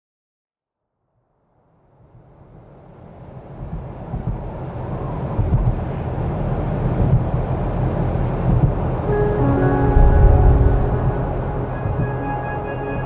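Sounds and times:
low rumbling rush of noise: 0:06.1 - 0:13.0.

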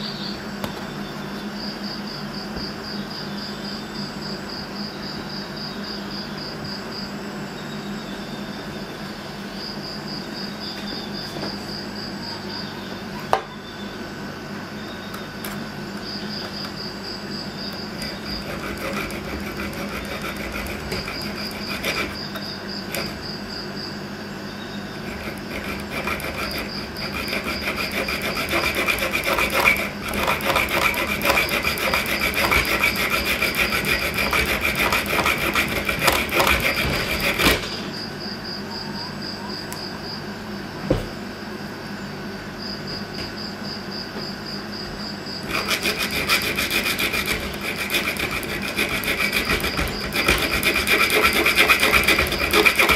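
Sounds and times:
saw cutting metal tube: 0:17.7 - 0:23.3, 0:25.0 - 0:37.7, 0:45.5 - 0:52.9.

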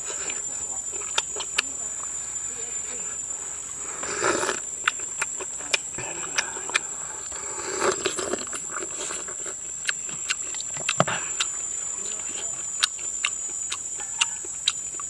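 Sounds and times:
high insect drone: 0:00.0 - 0:15.0
ladle slurp: 0:03.8 - 0:05.0, 0:06.0 - 0:11.6.

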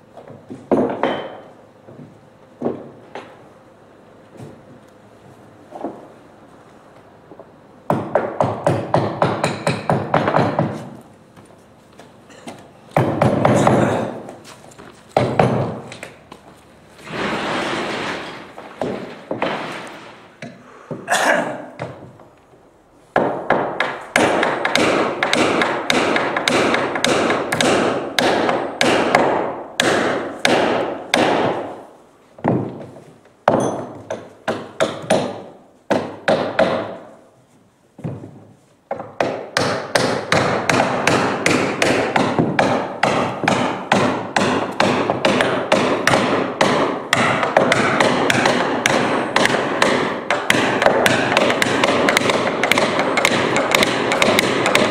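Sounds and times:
hammers tapping on wood: 0:07.4 - 0:16.4, 0:18.8 - 0:19.6, 0:21.8 - 0:22.3, 0:23.1 - 0:31.8, 0:32.4 - 0:37.2, 0:38.0 - 0:54.9.

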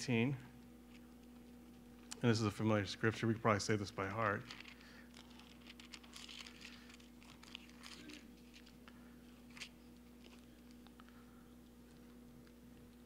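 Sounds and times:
low room hum: 0:00.0 - 0:13.0
pages rustling and crinkling: 0:04.1 - 0:11.0.

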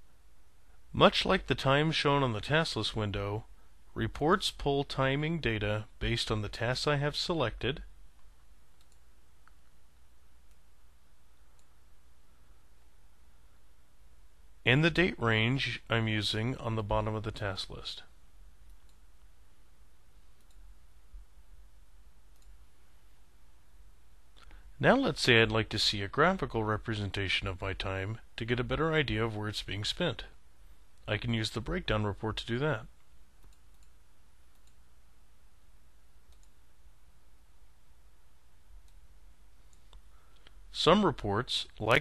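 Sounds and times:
faint low hum: 0:00.0 - 0:42.0
computer mouse clicks: 0:08.2 - 0:09.7, 0:20.2 - 0:20.6, 0:22.3 - 0:22.6, 0:33.0 - 0:34.8, 0:36.3 - 0:36.6.

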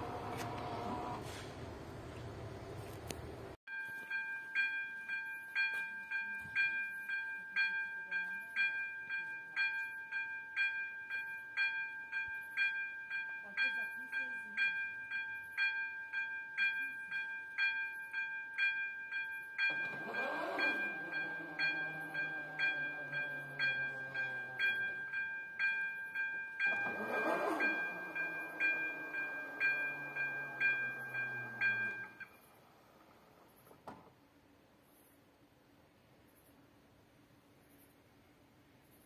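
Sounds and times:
crossing warning bell ringing: 0:03.7 - 0:33.6
barrier motor whine: 0:19.8 - 0:25.0.

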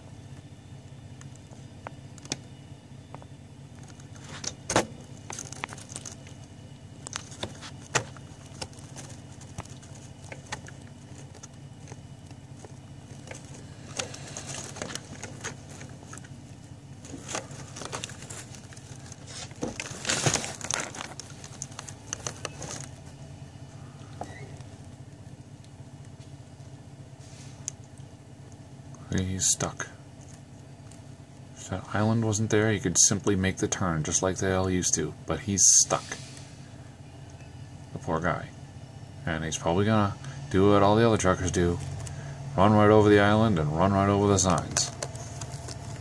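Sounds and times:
sharp clicks and rattles: 0:00.0 - 0:26.7, 0:43.0 - 0:46.0
truck engine idling: 0:00.0 - 0:46.0.

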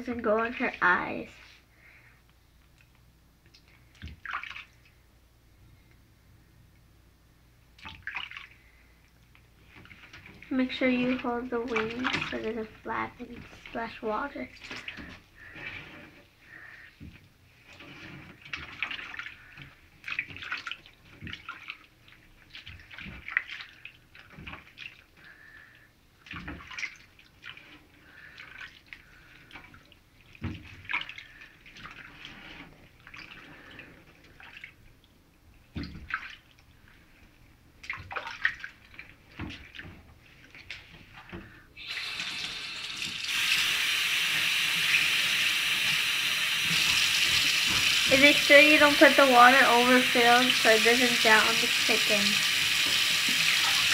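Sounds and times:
water splashing in a tub: 0:00.0 - 0:02.0, 0:02.7 - 0:05.1, 0:07.7 - 0:53.9
kitchen tap running: 0:10.4 - 0:15.7, 0:41.5 - 0:53.9.

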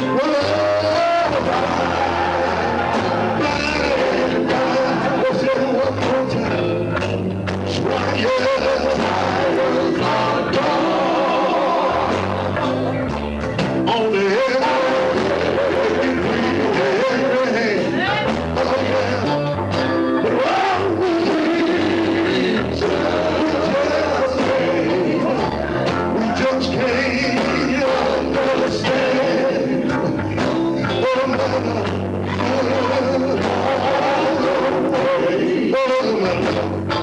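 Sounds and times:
low bass line: 0:00.0 - 0:29.1
electric guitars: 0:00.0 - 0:37.0
man singing with vibrato: 0:00.0 - 0:37.0.

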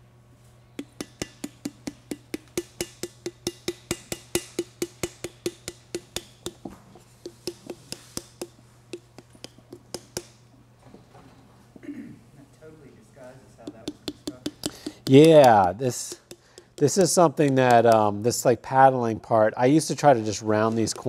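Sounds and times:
wooden paddle knocking clay pitcher: 0:00.8 - 0:10.4, 0:13.6 - 0:18.1.

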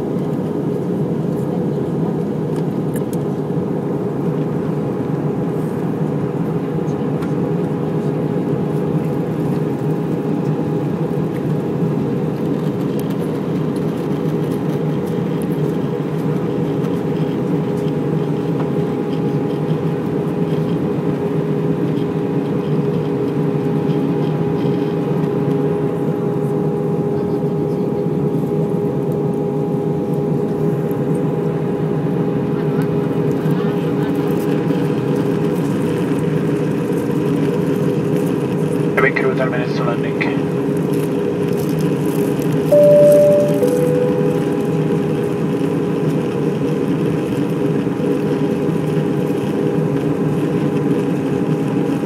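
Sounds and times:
airplane cabin engine rumble: 0:00.0 - 0:25.2
steady hum with held tones: 0:42.7 - 0:45.0.

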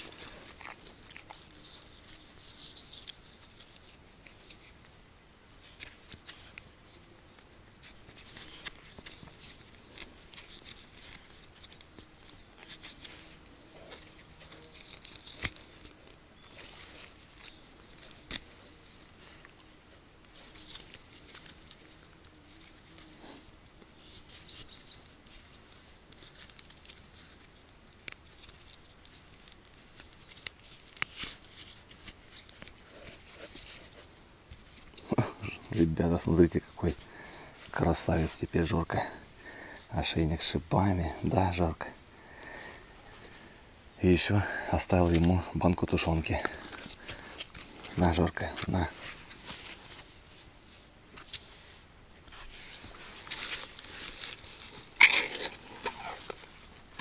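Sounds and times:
metal dog collar clicks and clinks: 0:00.0 - 0:02.2
rustling: 0:00.0 - 0:57.0.

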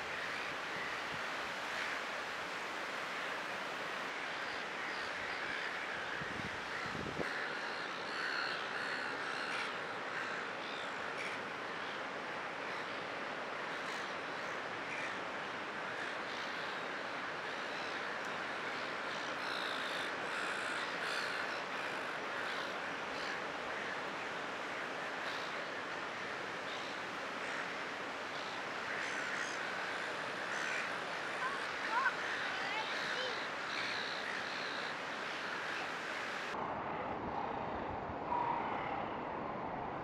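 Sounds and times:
surf and breaking waves: 0:00.0 - 0:40.0
bird calls: 0:28.3 - 0:36.5.

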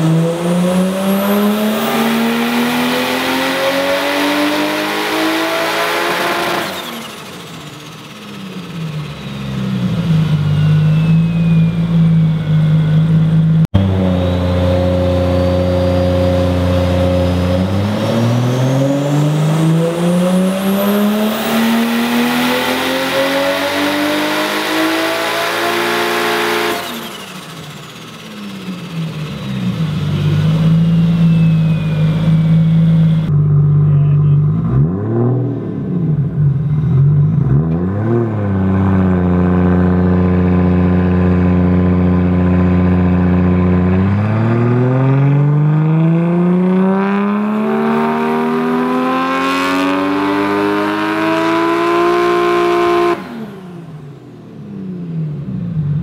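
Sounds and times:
car engine revving on dyno: 0:00.0 - 0:33.6, 0:34.5 - 0:56.0
turbo whine: 0:06.5 - 0:34.6.

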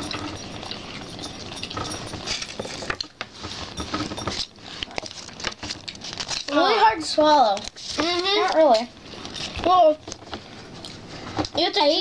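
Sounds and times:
foil wrappers rustling: 0:03.5 - 0:10.8.

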